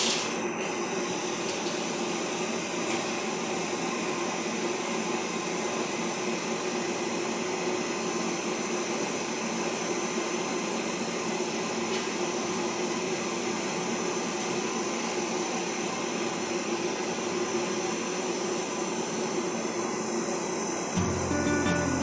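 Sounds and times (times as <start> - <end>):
pet dryer blowing air: 0.0 - 21.0
steady hum: 19.0 - 22.0.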